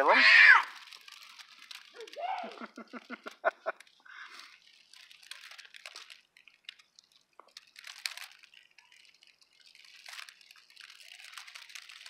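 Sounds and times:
dry leaves crackling and rustling: 0:00.0 - 0:12.0.

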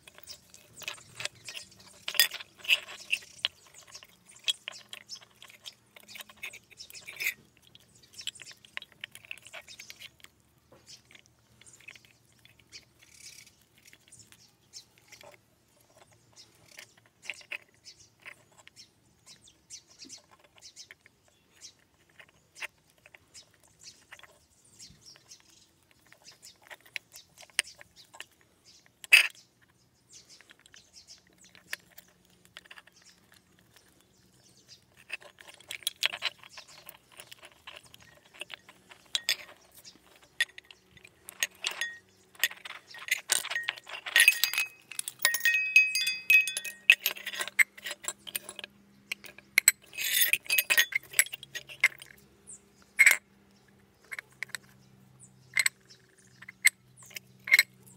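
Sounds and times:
small metal clicks and clinks: 0:00.0 - 0:57.9
metallic bell ringing: 0:43.6 - 0:47.0.

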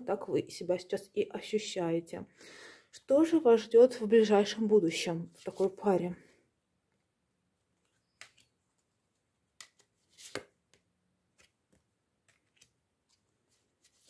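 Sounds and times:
cards flicking and slapping: 0:07.8 - 0:08.9, 0:09.5 - 0:13.2.

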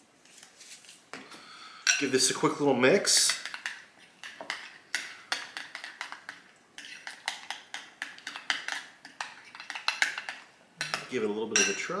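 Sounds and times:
metal spoon clinking against glass bowl: 0:10.8 - 0:12.0.

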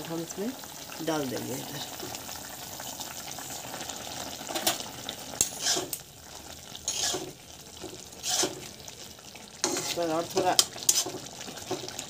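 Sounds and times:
curry sizzling in pan: 0:00.0 - 0:12.0
spoon scraping pan: 0:05.4 - 0:06.0, 0:06.8 - 0:08.8, 0:09.6 - 0:12.0.

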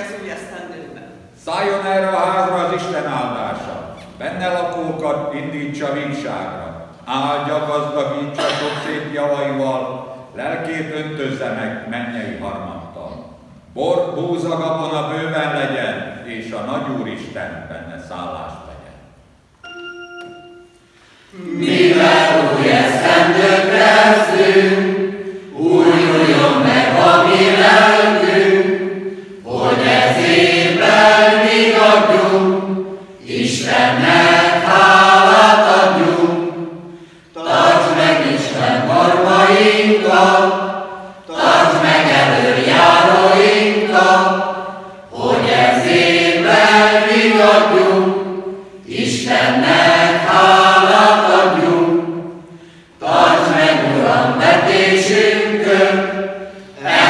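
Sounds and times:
mixed choir singing: 0:21.3 - 0:57.0.

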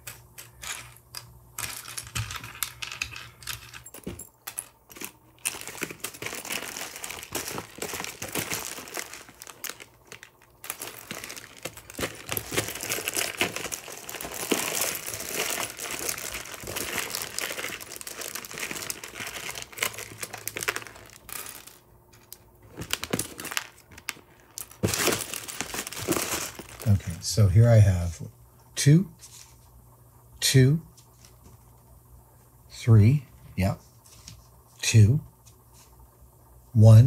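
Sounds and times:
plastic parts rustling and clicking: 0:00.0 - 0:26.9.

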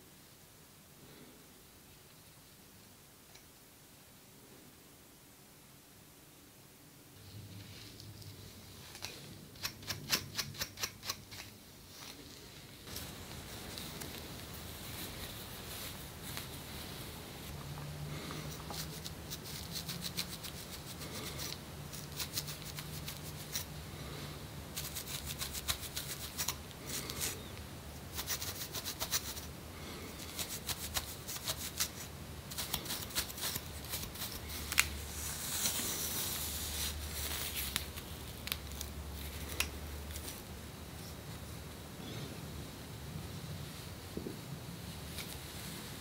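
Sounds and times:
scratching scalp dry clicks: 0:09.0 - 0:11.5
rasping scrape on skin: 0:18.5 - 0:23.7, 0:24.8 - 0:27.4, 0:28.1 - 0:29.5, 0:30.2 - 0:37.9.

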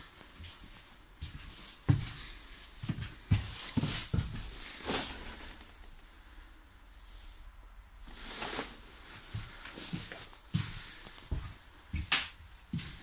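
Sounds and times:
footsteps on bus floor: 0:00.2 - 0:05.7, 0:08.5 - 0:13.0.

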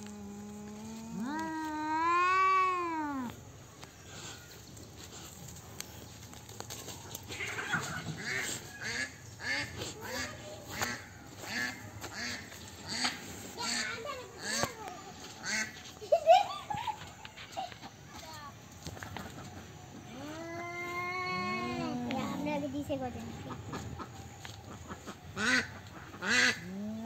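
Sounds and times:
cats yowling: 0:00.7 - 0:03.4, 0:20.1 - 0:22.5.

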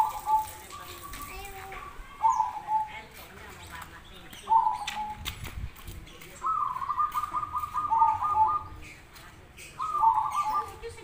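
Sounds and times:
dove cooing: 0:00.0 - 0:03.3, 0:04.4 - 0:05.2, 0:06.4 - 0:09.0, 0:09.7 - 0:11.0.

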